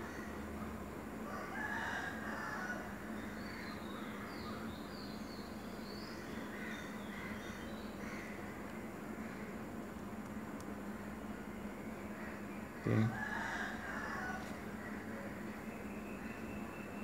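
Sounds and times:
background hiss and low hum: 0.0 - 17.0
rooster crowing: 1.2 - 3.0, 12.9 - 14.7
small birds chirping: 3.1 - 13.6, 14.4 - 17.0.

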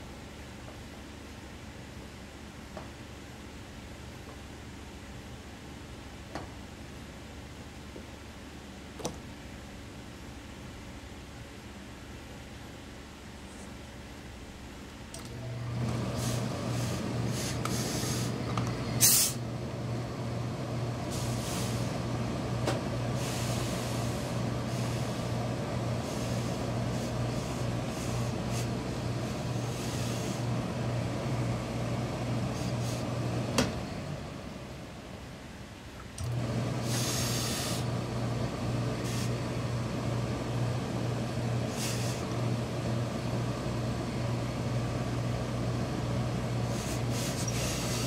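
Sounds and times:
electric hum with air rush: 0.0 - 48.0
short hiss of steam: 19.0 - 19.4, 21.1 - 21.9, 36.8 - 37.8, 41.7 - 42.2.

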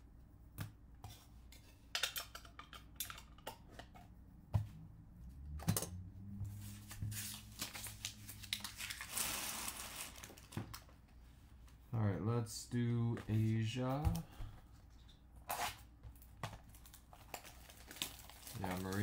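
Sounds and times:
card sleeves rustling: 6.5 - 10.6
trading cards rustling: 6.6 - 10.9, 16.2 - 19.0.

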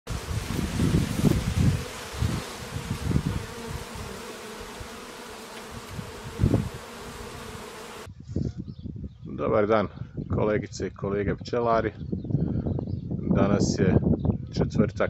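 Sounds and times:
bees buzzing: 0.1 - 8.1.

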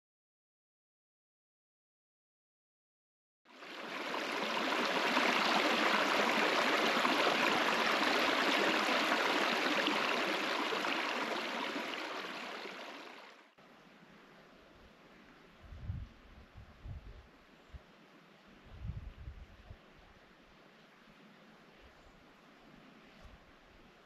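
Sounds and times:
stream running over rocks: 3.5 - 13.5
faint background hiss: 3.5 - 24.0.

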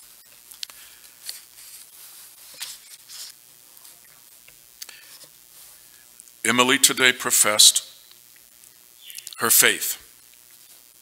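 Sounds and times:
faint rustles and clicks: 0.0 - 6.4, 10.1 - 11.0.

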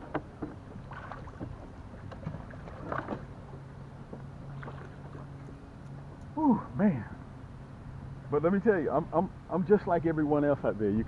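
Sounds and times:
water sloshing: 0.0 - 6.3.

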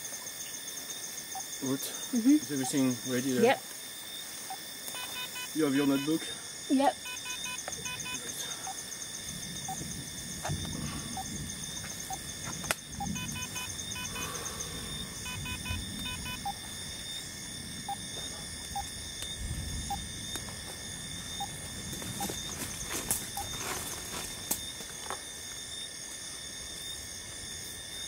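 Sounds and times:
insects chorus: 0.0 - 28.0
short chirping calls: 4.5 - 6.2, 13.0 - 16.5
rustling on a tarp: 21.6 - 26.2.

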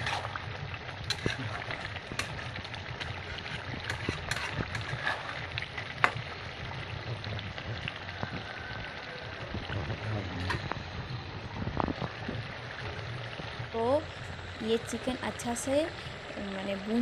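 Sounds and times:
spatula scraping metal pot: 0.0 - 0.4, 1.0 - 6.2
steady low rumble: 0.0 - 8.5, 9.4 - 17.0.

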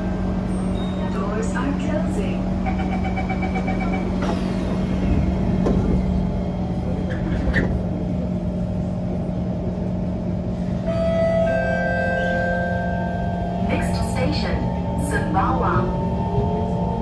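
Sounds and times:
low hum of train equipment: 0.0 - 17.0
door-closing warning beeps: 2.7 - 4.4
train doors sliding shut: 2.9 - 6.3, 7.0 - 8.0.

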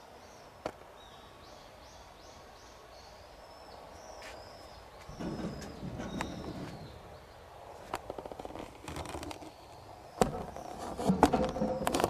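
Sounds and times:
steady outdoor hiss: 0.0 - 12.0
birds chirping and whistling: 1.0 - 7.5, 9.3 - 12.0.

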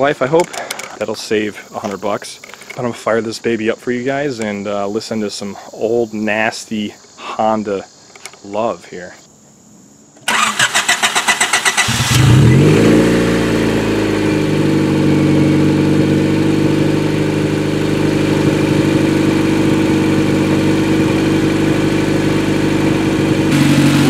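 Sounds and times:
car engine starting and idling: 10.2 - 24.0.

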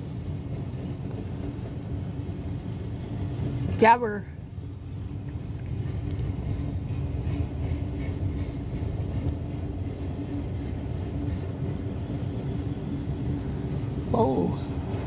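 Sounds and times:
freight train rolling past: 0.0 - 15.0.

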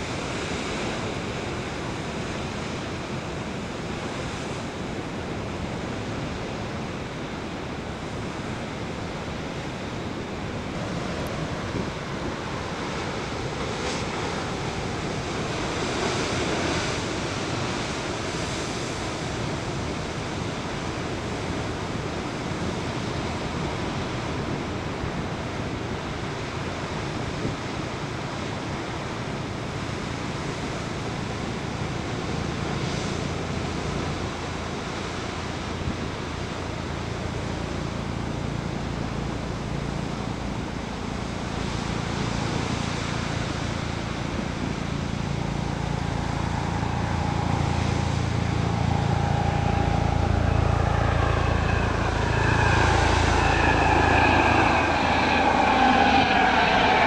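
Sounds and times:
propeller aircraft engine drone: 0.0 - 57.0.

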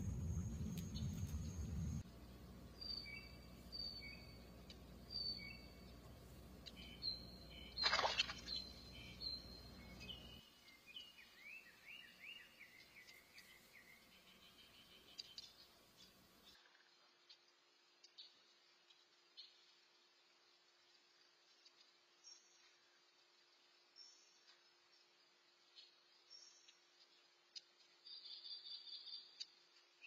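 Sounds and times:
birds chirping: 0.0 - 2.0, 2.7 - 16.2
low steady background noise: 0.0 - 30.0.

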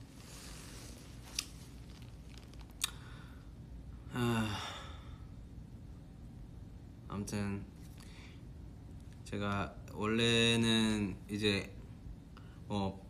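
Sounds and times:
man sighing: 4.1 - 5.2.

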